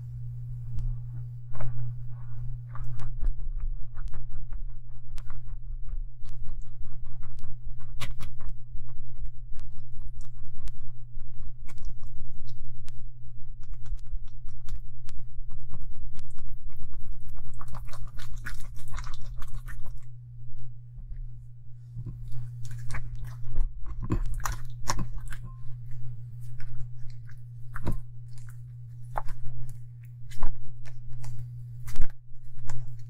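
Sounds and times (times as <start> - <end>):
steady low hum: 0.0 - 33.0
spatula stirring sticky slime: 17.3 - 20.3, 21.8 - 33.0.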